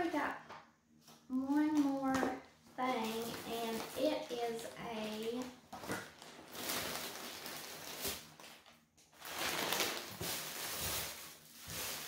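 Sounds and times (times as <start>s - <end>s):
plastic packaging crinkling: 2.8s - 12.0s.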